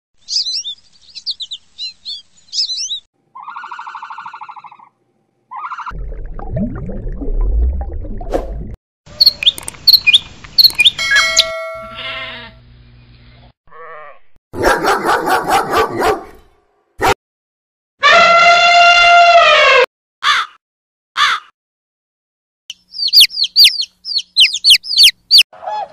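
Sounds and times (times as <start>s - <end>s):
sparrow chirping: 0.2s - 3.1s, 9.1s - 11.5s, 22.7s - 25.4s
bird calls: 0.2s - 4.9s, 9.1s - 11.0s, 22.7s - 25.9s
sheep bleating: 11.9s - 12.6s, 13.7s - 14.3s.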